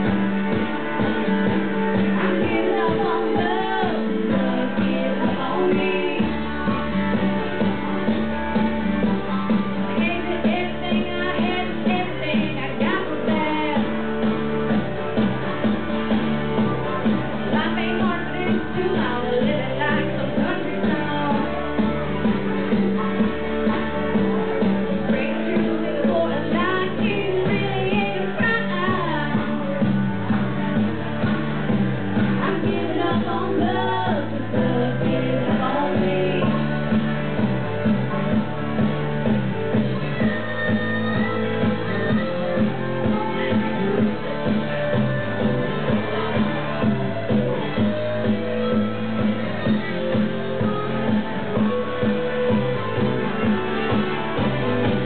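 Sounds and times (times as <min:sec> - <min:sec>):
rock-pop band with guitar: 0:00.0 - 0:55.0
woman singing into microphone: 0:02.0 - 0:06.7, 0:09.9 - 0:14.0, 0:17.5 - 0:21.7, 0:25.0 - 0:29.9, 0:32.3 - 0:36.8.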